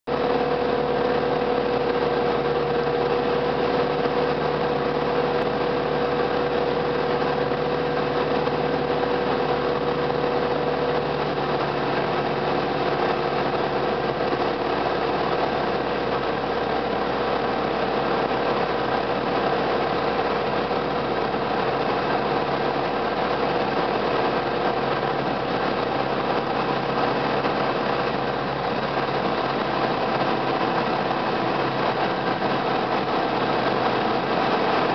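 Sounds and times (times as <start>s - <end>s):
aircraft propeller engine droning: 0.1s - 34.9s.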